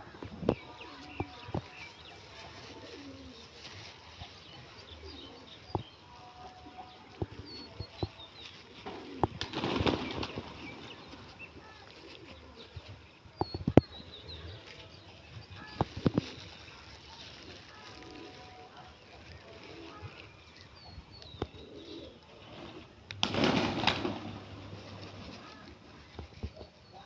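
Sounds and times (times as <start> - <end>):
pigeons flapping wings: 8.5 - 11.3, 22.5 - 26.5.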